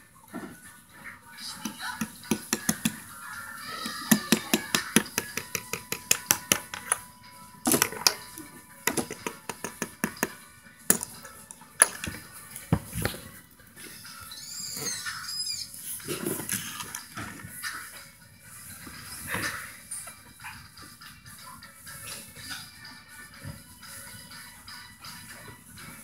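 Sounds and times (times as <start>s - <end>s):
plastic bricks clicking and clattering: 7.6s - 12.2s.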